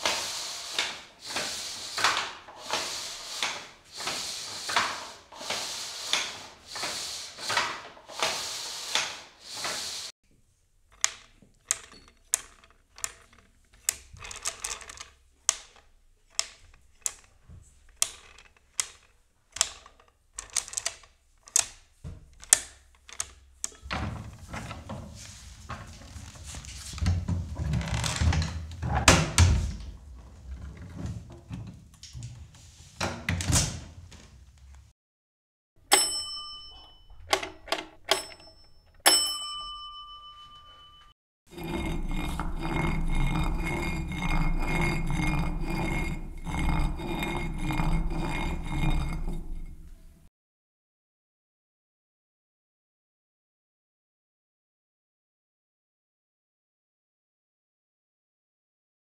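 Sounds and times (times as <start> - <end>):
loom shuttle and beater knocking: 0.0 - 10.1, 11.0 - 17.3, 41.5 - 50.0.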